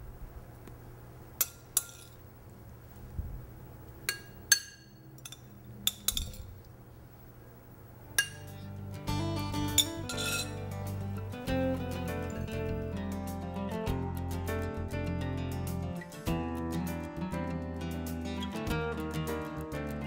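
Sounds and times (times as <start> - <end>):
metal spoon clinking on glass: 1.4 - 2.2, 4.1 - 6.5, 8.2 - 8.7, 9.7 - 10.6
background music: 8.1 - 20.0.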